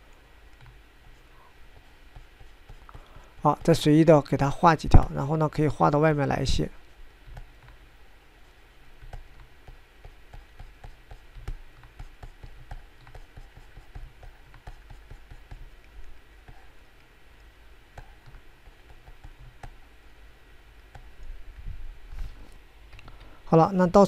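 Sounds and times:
low steady hum: 0.0 - 24.0
mouse and keyboard clicks: 9.0 - 16.6.

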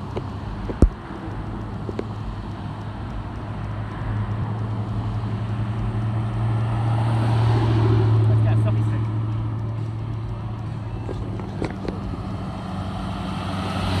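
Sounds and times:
car engine hum: 0.0 - 14.0.

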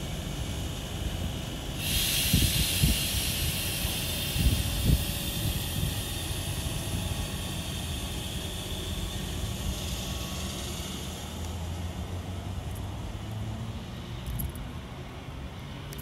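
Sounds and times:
loud hiss of air brakes: 0.0 - 12.1
train low rumble: 0.0 - 16.0.

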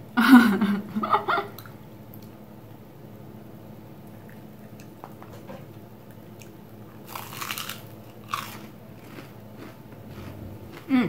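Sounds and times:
crunch of fried crust: 6.9 - 11.0.

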